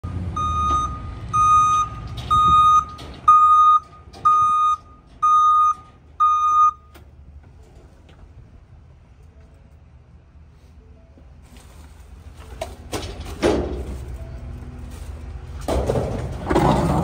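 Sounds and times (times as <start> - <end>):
truck backup alarm beeping: 0.0 - 7.1
low engine rumble: 0.0 - 17.0.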